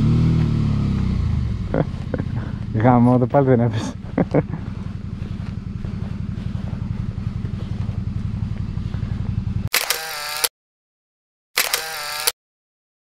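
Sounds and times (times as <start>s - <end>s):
motorcycle engine at low revs: 0.0s - 10.4s
camera shutter sound effect: 9.7s - 10.5s, 11.6s - 12.4s.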